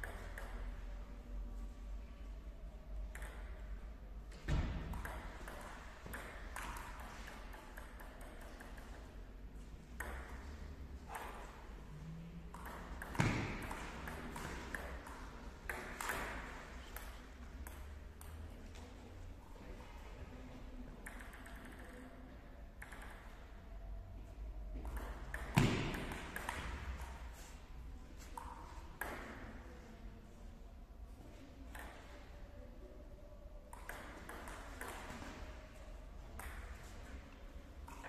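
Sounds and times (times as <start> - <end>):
table tennis ball clicking: 3.1 - 3.6, 4.9 - 9.2, 10.0 - 10.3, 12.5 - 18.4, 33.7 - 35.0.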